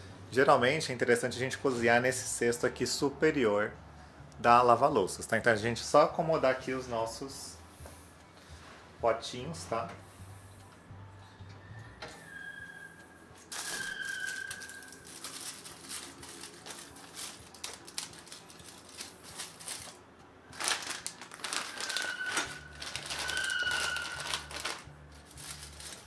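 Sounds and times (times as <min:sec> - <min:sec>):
foil and plastic bags crinkling: 0:13.5 - 0:26.0.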